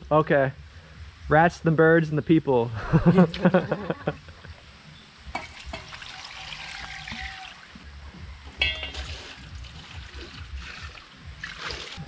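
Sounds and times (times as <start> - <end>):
water pouring and splashing into bowl: 5.4 - 7.8, 8.7 - 12.0.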